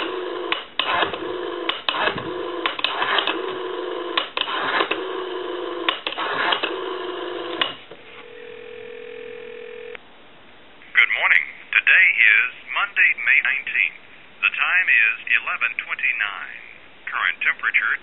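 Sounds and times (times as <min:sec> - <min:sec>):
steady hum: 0:00.0 - 0:11.9
short telephone tones: 0:08.0 - 0:10.0.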